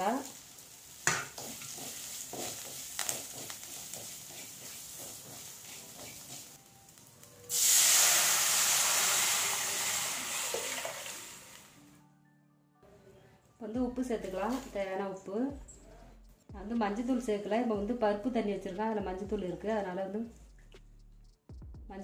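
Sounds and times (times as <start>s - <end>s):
spices frying in hot oil: 0.0s - 6.6s, 7.2s - 11.8s
liquid hissing in hot pan: 7.5s - 11.7s.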